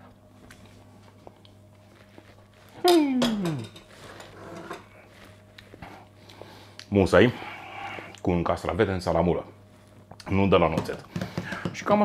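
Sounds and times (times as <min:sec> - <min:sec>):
man humming mmm: 0:02.8 - 0:03.8.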